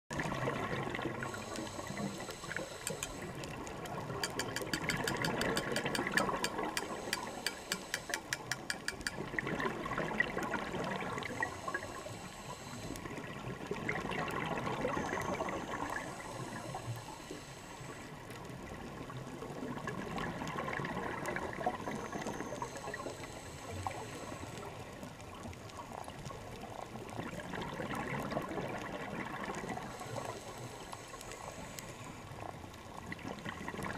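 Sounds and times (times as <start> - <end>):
exhaled bubbles rumbling: 0.1 - 7.5, 8.9 - 16.9, 18.0 - 22.8, 24.6 - 30.1, 32.3 - 33.9
diver breathing through regulator: 1.2 - 3.6, 5.3 - 9.1, 11.1 - 13.2, 15.4 - 18.2, 22.2 - 24.8, 29.8 - 32.3
quick clicks: 4.2 - 9.2.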